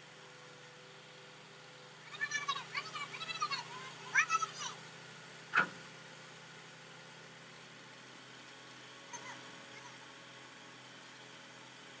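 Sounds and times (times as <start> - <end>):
crane engine idling: 0.0 - 12.0.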